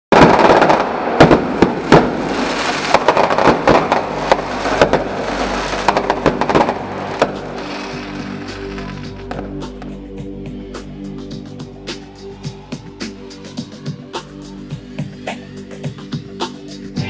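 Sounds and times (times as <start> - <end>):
fireworks bangs: 0.1 - 9.5
fireworks crackling: 0.1 - 9.6.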